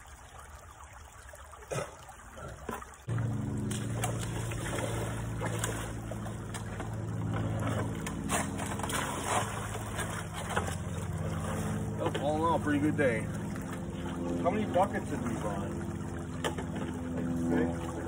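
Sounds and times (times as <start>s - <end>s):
water splashing and sloshing: 0.0s - 18.0s
steady low hum: 3.0s - 18.0s.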